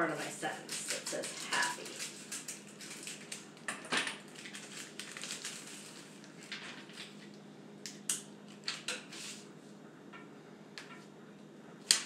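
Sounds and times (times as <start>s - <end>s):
paper crinkling: 0.6s - 3.5s, 4.2s - 7.4s.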